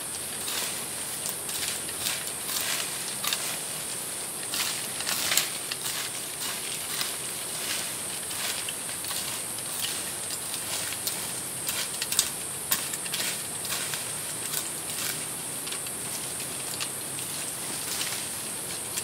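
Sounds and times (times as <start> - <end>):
high insect drone: 0.0 - 19.0
bladed tool chopping soil: 0.4 - 3.8, 4.4 - 15.3.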